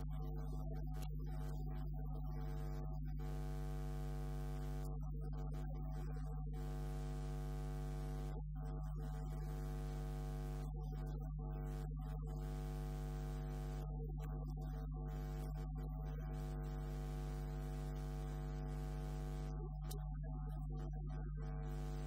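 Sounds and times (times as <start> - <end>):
electrical mains hum: 2.3 - 4.9, 6.6 - 8.3, 9.4 - 10.8, 16.2 - 20.3, 21.2 - 22.0.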